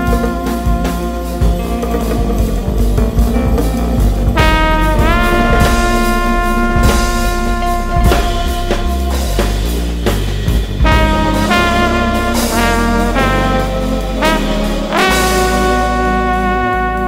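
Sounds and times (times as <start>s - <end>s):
drum kit: 0.0s - 17.0s
trombone playing: 0.0s - 17.0s.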